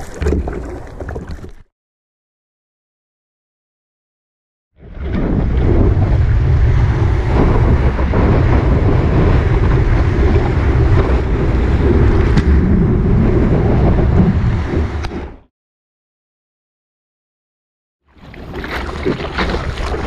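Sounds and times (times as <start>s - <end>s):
wind buffeting microphone: 5.0s - 15.4s.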